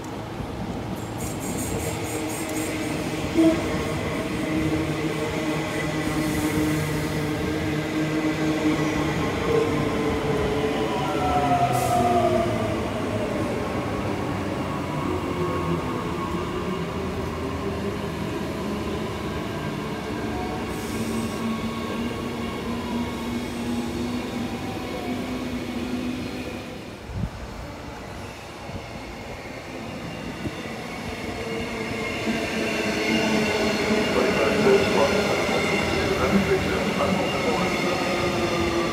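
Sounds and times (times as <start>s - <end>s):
train whining tones: 1.0s - 7.5s.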